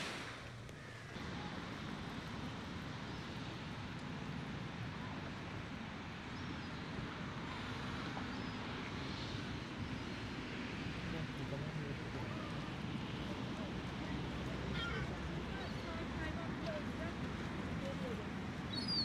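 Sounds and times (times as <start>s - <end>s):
wide hiss: 0.0s - 2.6s.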